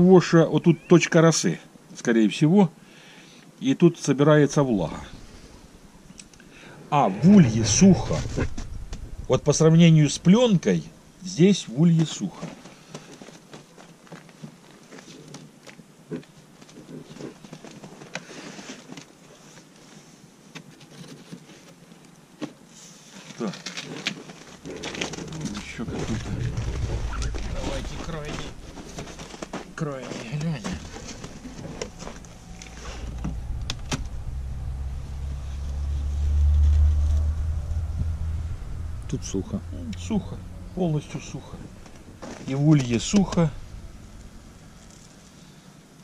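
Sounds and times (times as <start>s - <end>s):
steady low rumble: 4.3s - 11.8s, 24.6s - 46.0s.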